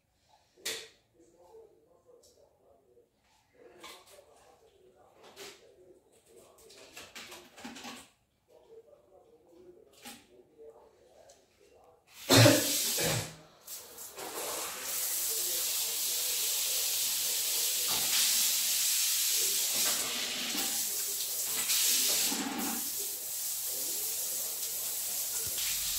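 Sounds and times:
shower water spraying: 12.2 - 25.9.

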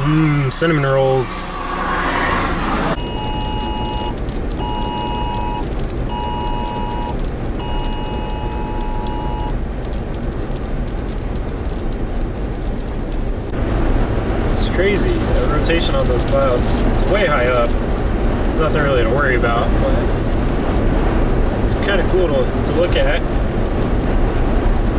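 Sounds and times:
wind and vehicle noise: 0.0 - 24.9
emergency alert tone beeps: 3.0 - 9.5.

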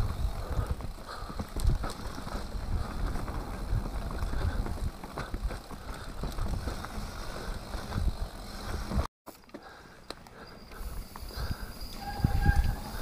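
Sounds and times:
bike knocks and rattles: 0.0 - 9.7
tyres rumbling on dirt trail: 0.0 - 13.0
wind on microphone: 11.0 - 13.0.

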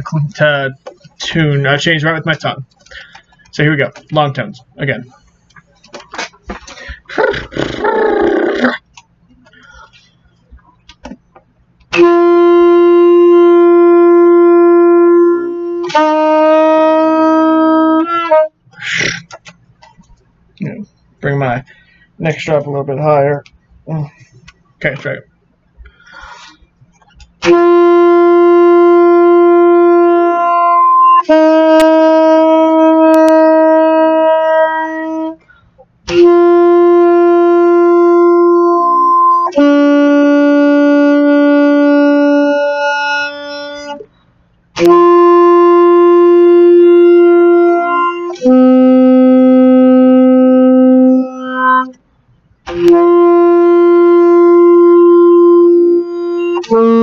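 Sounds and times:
saxophone playing long tones: 7.2 - 8.7, 11.9 - 19.0, 27.4 - 35.5, 36.1 - 44.1, 44.8 - 52.0, 52.7 - 57.0.

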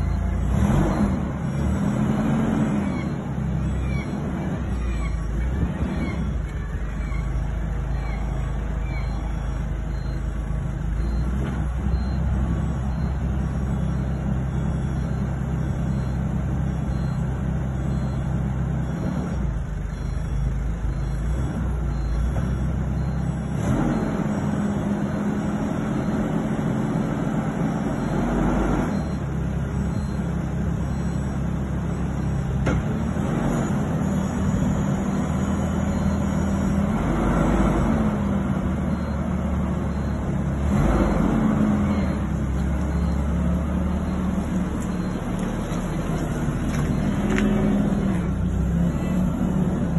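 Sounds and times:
forklift engine running: 0.0 - 49.9.

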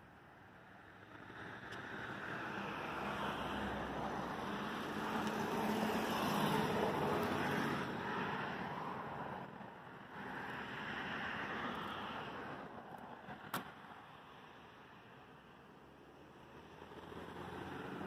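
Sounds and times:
car passing: 1.4 - 9.6, 16.4 - 18.0.

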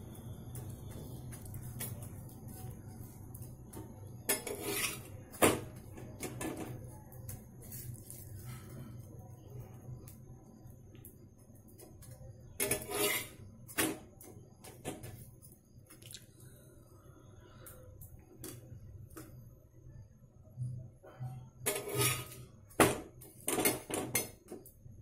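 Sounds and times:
spatula scraping iron griddle: 4.2 - 5.3, 12.6 - 13.4, 21.6 - 22.5.

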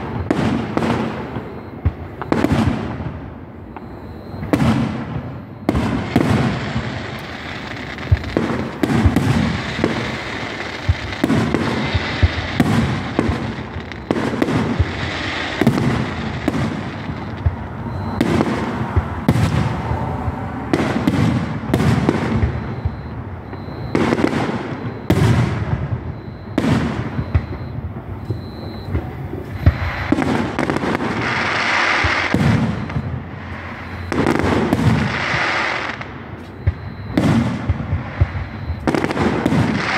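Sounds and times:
fireworks bangs and booms: 0.0 - 39.9
fireworks hissing crackle: 0.0 - 39.9.

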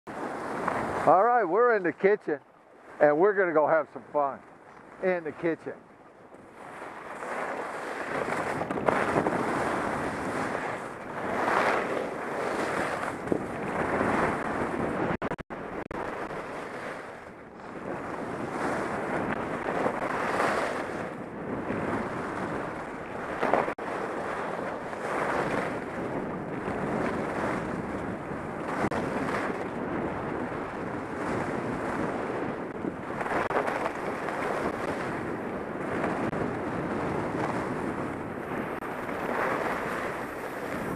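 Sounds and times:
wind on microphone: 0.1 - 40.9
skis scraping snow: 6.6 - 14.4, 16.4 - 21.0, 23.4 - 25.7, 36.9 - 40.9.

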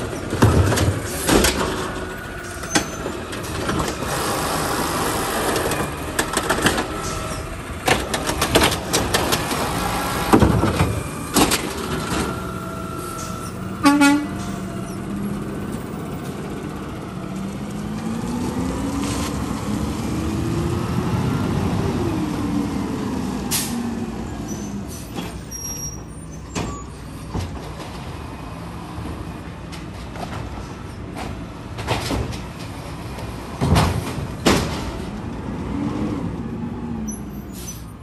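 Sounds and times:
garbage truck diesel engine: 0.0 - 38.0
air-brake hisses: 37.5 - 38.0.

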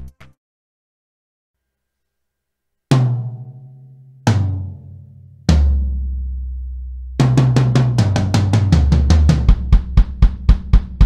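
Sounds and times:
drum roll around toms: 7.2 - 11.0.

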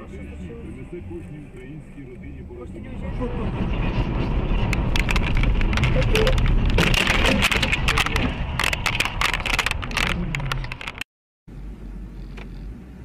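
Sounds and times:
car road and engine rumble: 0.0 - 13.0
sharp clicks and crackles: 4.6 - 11.1.

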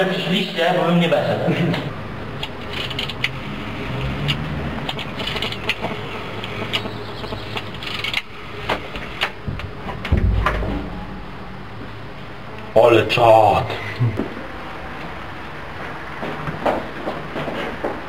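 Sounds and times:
low thud: 9.4 - 12.4
low hum: 9.4 - 12.7.

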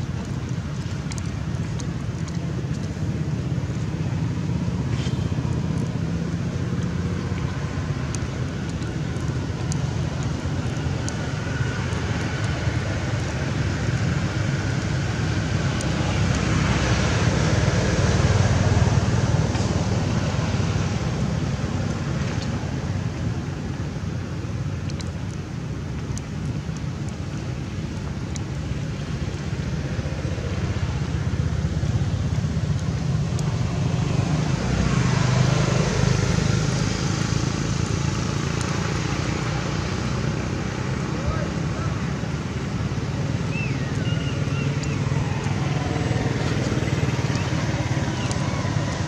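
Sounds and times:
road traffic hum: 0.0 - 49.0.

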